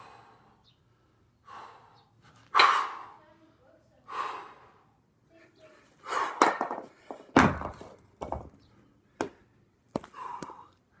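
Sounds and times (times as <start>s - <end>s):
hard breathing: 0.0s - 5.1s, 10.0s - 11.0s
kettlebells thudding on tiled floor: 6.1s - 8.6s.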